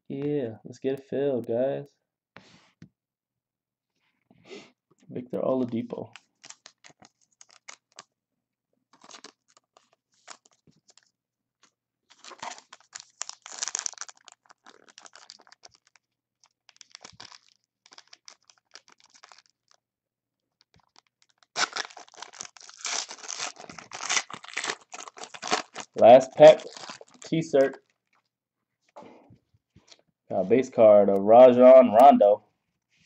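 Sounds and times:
plastic and foil crinkling: 0:05.5 - 0:08.1, 0:08.9 - 0:19.8, 0:20.4 - 0:29.0
foil wrapper tearing open: 0:05.7 - 0:08.1, 0:09.0 - 0:11.1, 0:12.1 - 0:19.8, 0:20.5 - 0:28.0.

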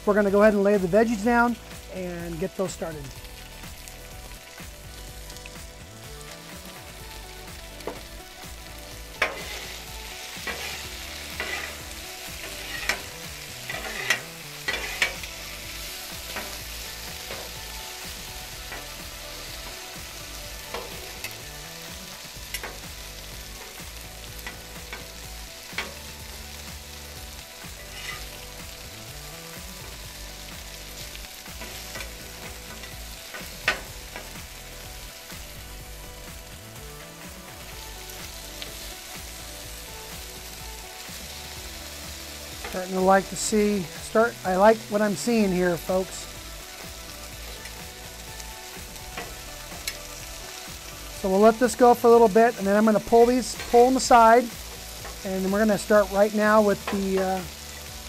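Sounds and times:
meat sizzling in oil: 0:00.0 - 0:58.0
metal spatulas scraping griddle: 0:09.2 - 0:17.6, 0:27.8 - 0:28.4.

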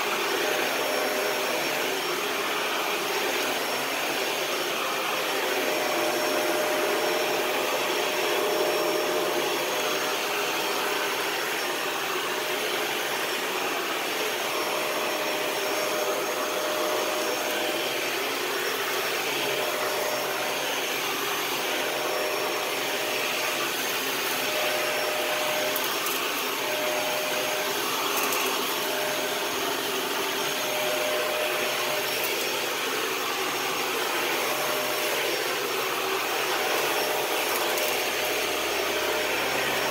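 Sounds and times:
vacuum cleaner running: 0:00.0 - 0:39.9.

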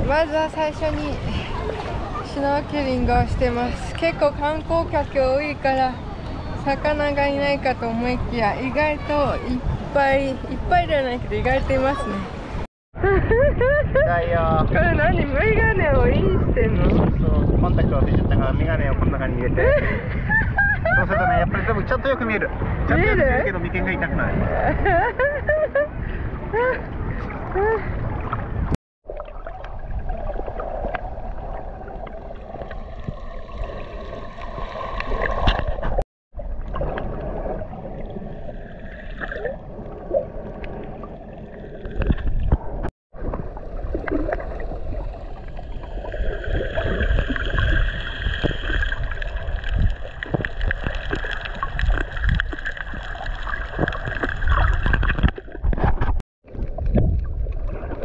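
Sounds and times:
water sloshing and gurgling: 0:00.0 - 0:58.0
muffled underwater rumble: 0:25.8 - 0:58.0.

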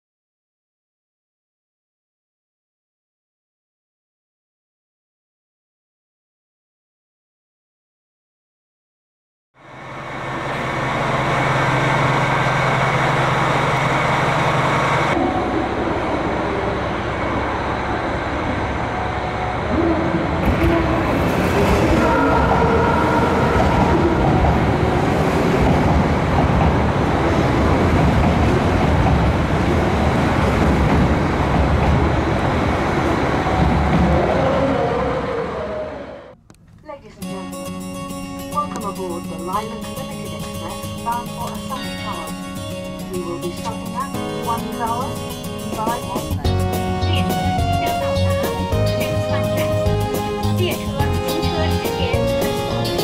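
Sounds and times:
electric train rumbling on rails: 0:09.6 - 0:36.4, 0:38.5 - 0:53.0.

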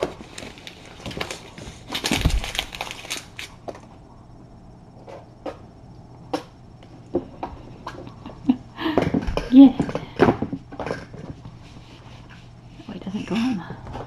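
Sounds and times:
hands rustling paper: 0:00.0 - 0:03.8.

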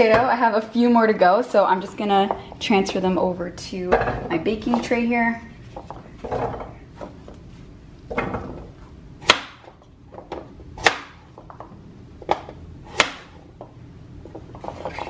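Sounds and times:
knife chopping on wooden board: 0:09.2 - 0:09.7, 0:10.8 - 0:11.2, 0:12.3 - 0:13.4.

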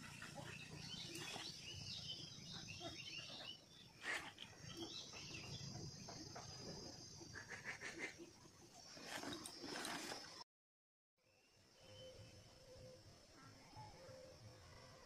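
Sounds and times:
insects and birds chirping: 0:00.0 - 0:10.4, 0:11.2 - 0:15.0.

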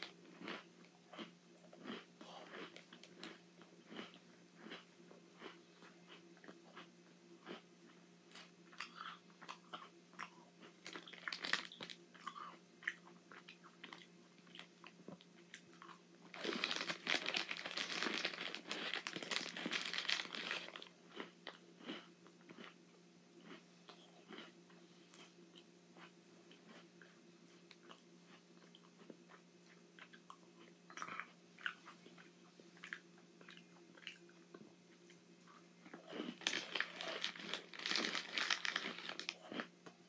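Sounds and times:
cookies crunching and chewing: 0:00.0 - 0:22.8, 0:23.4 - 0:40.0
plastic package crinkling: 0:10.8 - 0:12.0, 0:16.3 - 0:20.9, 0:36.4 - 0:39.4.

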